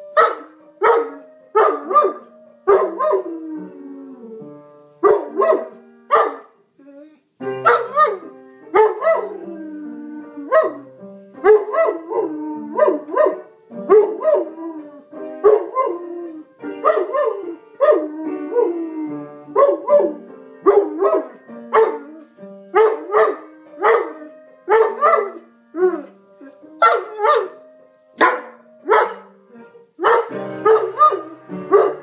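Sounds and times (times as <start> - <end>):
music with held notes: 0.0 - 32.0
dog barking: 0.2 - 3.2, 5.0 - 6.5, 7.6 - 9.3, 10.5 - 10.8, 12.8 - 14.4, 16.8 - 18.0, 19.6 - 22.0, 22.8 - 25.4, 26.8 - 27.6, 28.2 - 29.3, 30.0 - 32.0.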